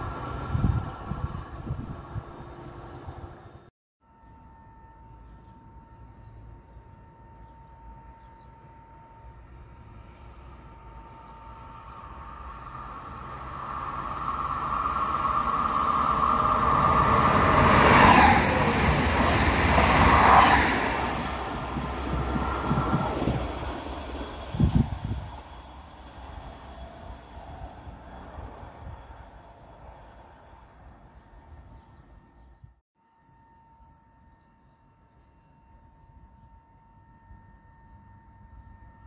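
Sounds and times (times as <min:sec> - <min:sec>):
train wheels rumbling on rails: 0:09.9 - 0:32.2.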